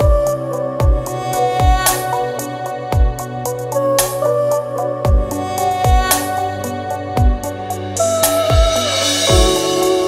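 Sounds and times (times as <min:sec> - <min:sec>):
melody over a beat: 0:08.4 - 0:10.0.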